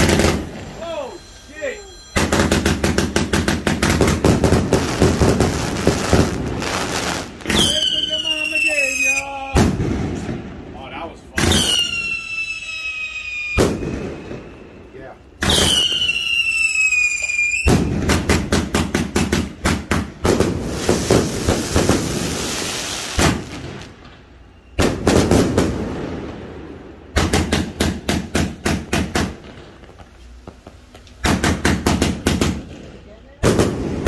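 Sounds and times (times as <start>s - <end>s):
rapid firework shots crackling: 0.0s - 1.6s, 2.2s - 8.8s, 9.5s - 10.6s, 13.6s - 14.3s, 17.6s - 24.0s, 24.8s - 26.3s, 27.1s - 34.0s
firework whistle dropping in pitch: 0.0s - 3.3s, 7.5s - 9.4s, 11.5s - 18.1s.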